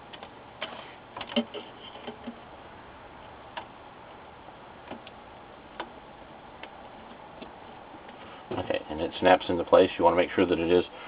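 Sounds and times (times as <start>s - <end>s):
small clicks and taps: 4.8s - 6.0s.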